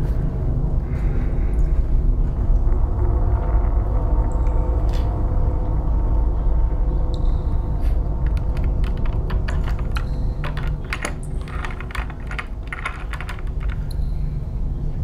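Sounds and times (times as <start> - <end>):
low rumble: 0.0 - 15.0
quick clicks and crackles: 8.2 - 14.0.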